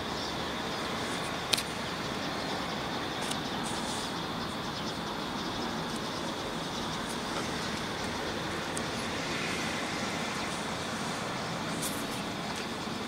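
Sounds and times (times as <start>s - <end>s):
outdoor background noise: 0.0s - 13.0s.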